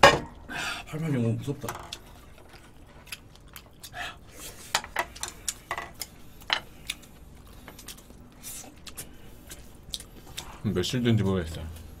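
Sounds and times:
chopsticks clicking on dishes: 4.8 - 7.0.

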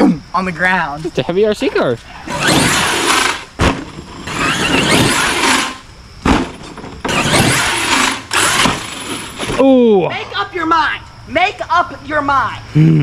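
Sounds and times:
rc truck electric motor whining: 2.2 - 9.6
heavy landing thump: 3.6 - 5.6, 6.2 - 9.7.

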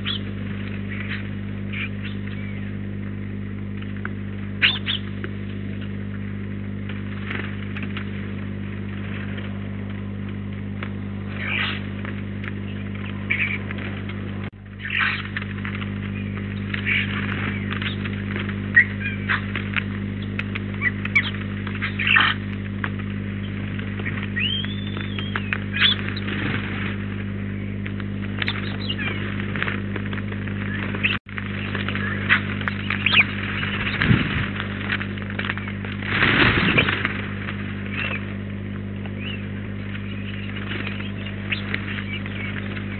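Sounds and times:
bird calls: 0.0 - 2.8, 4.6 - 5.2, 11.3 - 15.4, 16.0 - 22.6, 23.3 - 26.5, 27.4 - 29.6, 30.6 - 34.5, 37.8 - 38.4, 39.0 - 42.9
electrical mains hum: 0.0 - 42.9.

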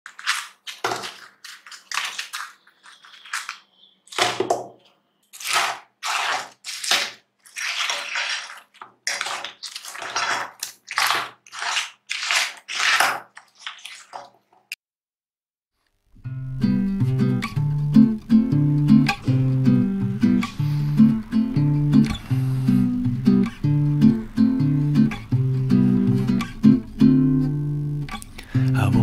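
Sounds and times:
spatula scraping sticky sauce in pan: 5.4 - 14.4.

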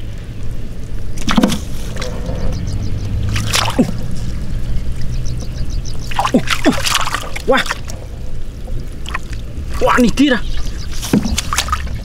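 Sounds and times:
small engine droning: 1.9 - 6.2.

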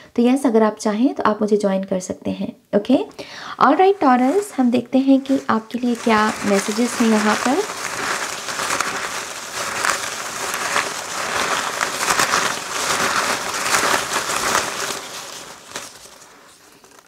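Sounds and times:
paper slips rustling in a bag: 3.9 - 17.0.

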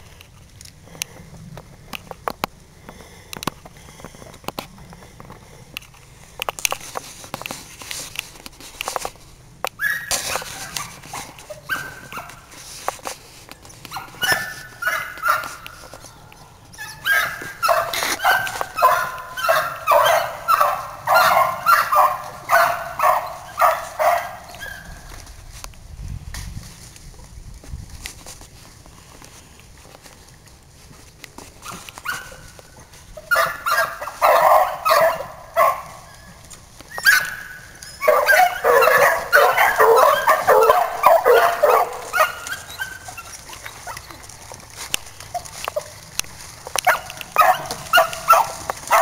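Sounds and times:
sharp snaps and clicks: 0.2 - 11.5
hounds baying: 9.8 - 12.7, 13.8 - 25.2, 31.5 - 49.0.

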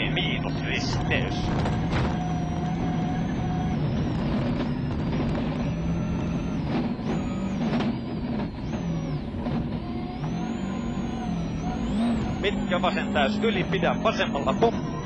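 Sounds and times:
rally car engine at speed: 0.0 - 15.0
sharp knocks from rough road: 1.0 - 2.8, 4.1 - 5.8.

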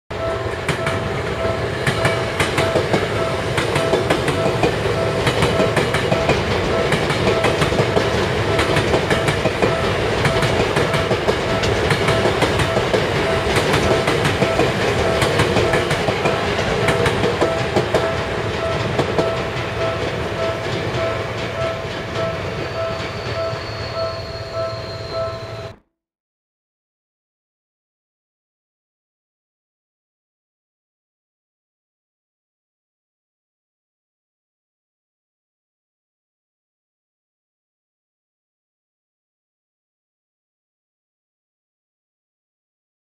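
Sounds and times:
level crossing bell ringing: 0.2 - 7.7, 8.5 - 25.8
train wheels clattering: 0.2 - 25.6.

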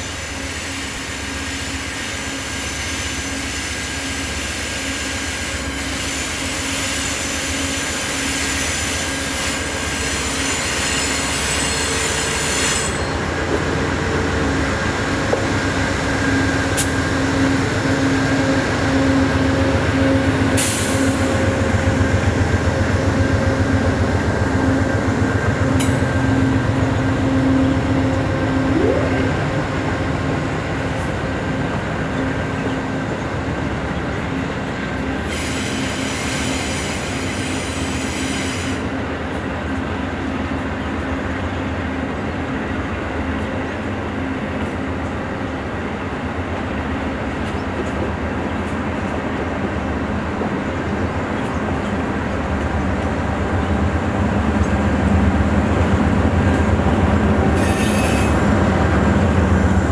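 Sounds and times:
train wheels rumbling on rail: 0.0 - 28.7, 29.3 - 59.9
hiss: 35.2 - 38.9.

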